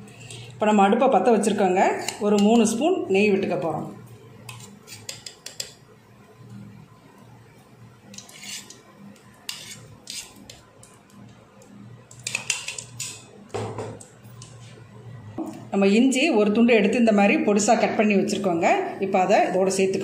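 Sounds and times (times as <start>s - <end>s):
metal spoon scraping metal pan: 0.0s - 0.5s, 1.7s - 2.8s, 4.4s - 5.8s, 8.1s - 10.6s.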